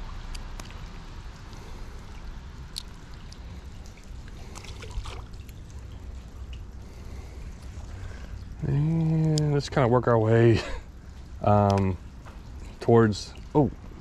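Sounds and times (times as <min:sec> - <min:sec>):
steady low rumble: 0:00.0 - 0:14.0
small splash of fish: 0:03.9 - 0:05.6.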